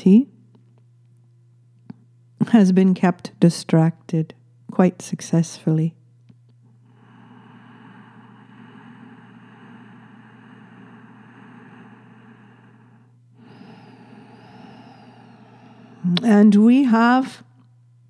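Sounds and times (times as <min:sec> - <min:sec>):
low steady hum: 0:00.0 - 0:18.0
soft breathing: 0:06.7 - 0:16.2.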